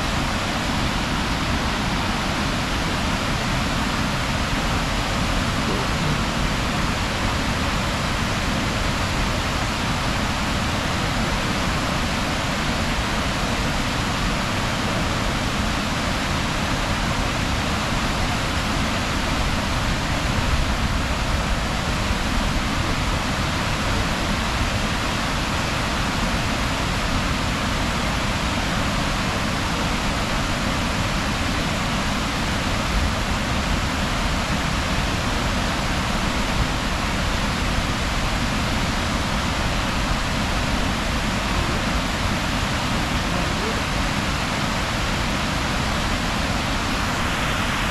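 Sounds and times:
waterfall rushing: 0.0s - 47.9s.

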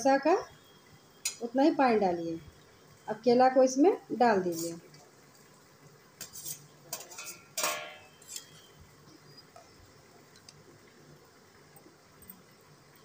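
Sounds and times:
metal knocking against a pan: 7.0s - 8.2s.

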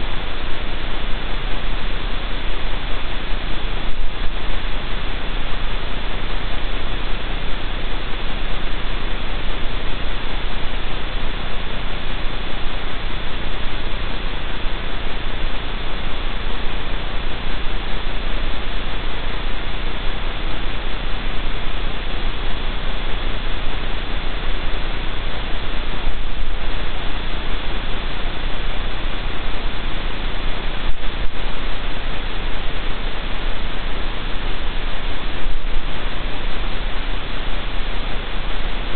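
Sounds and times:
faint high whine: 0.0s - 38.9s
low mains hum: 0.0s - 38.9s
static hiss: 0.0s - 38.9s.

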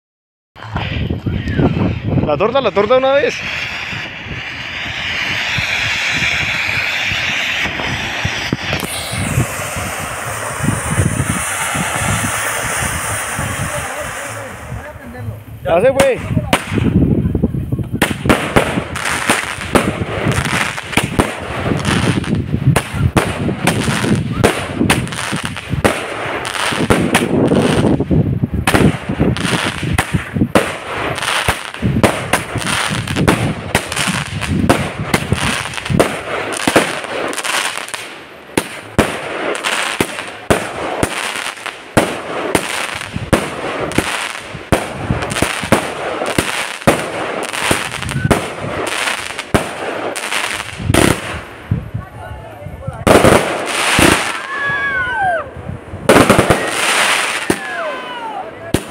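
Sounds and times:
fireworks launching and bursting: 0.6s - 58.9s.

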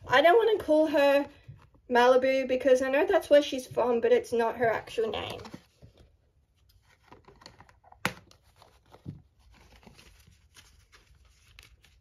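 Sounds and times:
cardboard rustling and tearing: 6.7s - 12.0s.

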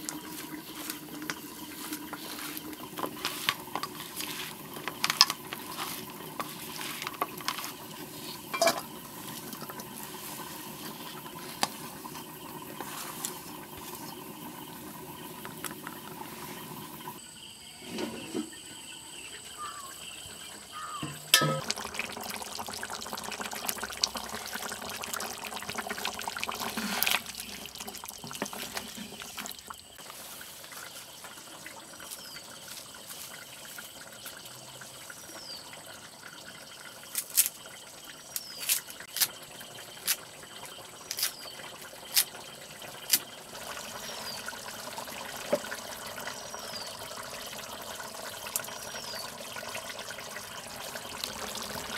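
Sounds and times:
firewood crackling: 0.0s - 17.0s, 21.6s - 31.4s
gravy simmering: 0.0s - 17.2s, 19.4s - 51.9s
liquid pouring into pan: 21.0s - 34.8s, 41.6s - 51.9s.

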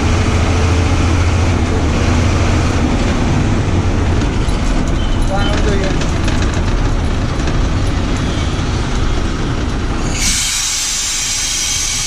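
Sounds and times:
bus diesel engine: 0.0s - 12.0s
road rumble: 0.0s - 12.0s
loud steady hiss: 10.1s - 12.0s.

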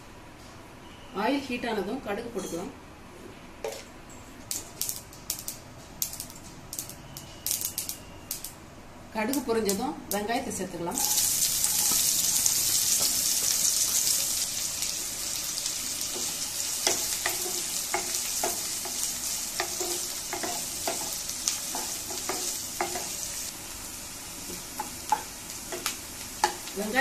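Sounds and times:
onions sizzling in oil: 10.9s - 27.0s.

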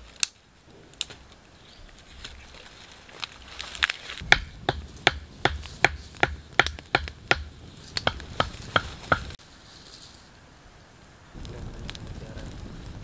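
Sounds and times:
wooden club knocking on stake: 4.2s - 9.4s.

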